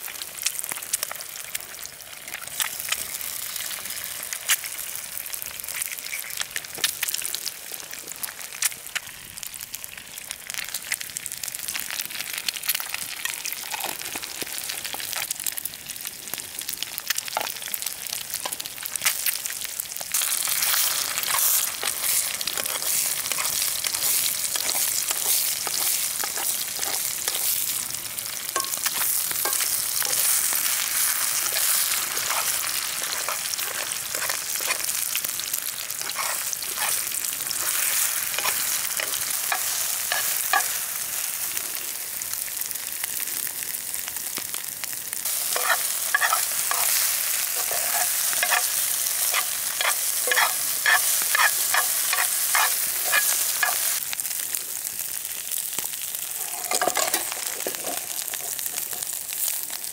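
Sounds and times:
eggs sizzling in frying pan: 0.0s - 59.9s
metal spoon scraping pan: 20.7s - 27.6s, 28.6s - 35.0s, 36.0s - 40.8s, 45.4s - 54.0s, 56.4s - 59.2s.

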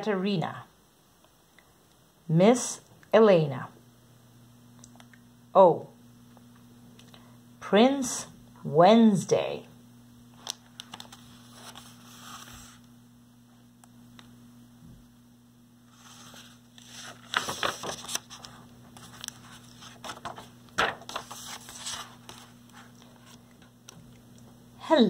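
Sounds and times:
faint steady hum: 0.0s - 25.0s
book pages rustling and turning: 10.4s - 12.9s, 15.9s - 24.1s.

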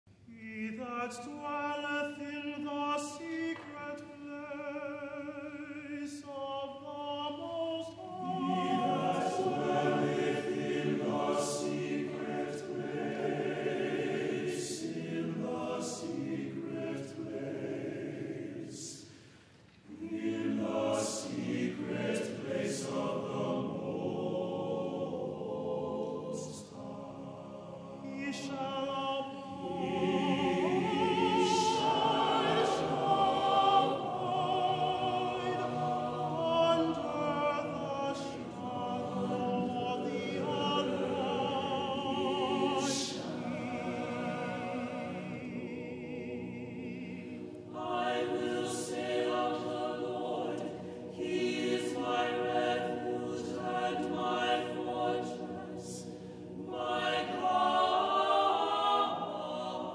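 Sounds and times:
choir singing: 0.1s - 59.9s.

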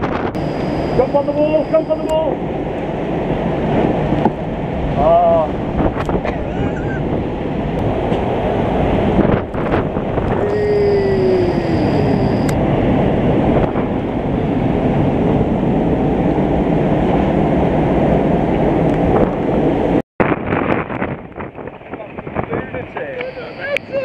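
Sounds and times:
storm waves breaking: 0.0s - 24.0s
wind buffeting microphone: 0.0s - 24.0s.

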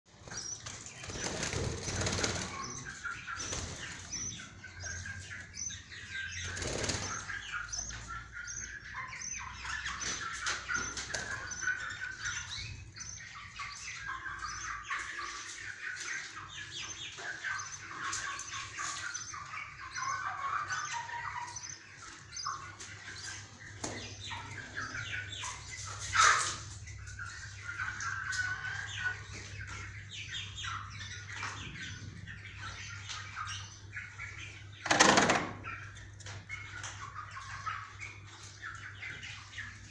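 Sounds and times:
budgerigars chattering and chirping: 0.1s - 39.9s
wings fluttering: 0.6s - 2.7s, 6.4s - 7.4s.

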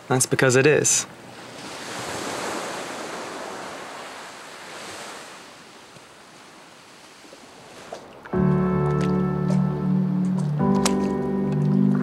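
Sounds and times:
surf washing up on beach: 1.3s - 8.3s.

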